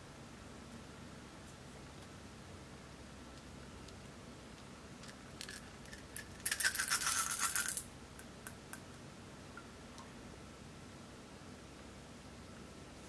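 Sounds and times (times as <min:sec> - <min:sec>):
beads rattling into glass dish: 0:05.4 - 0:07.8.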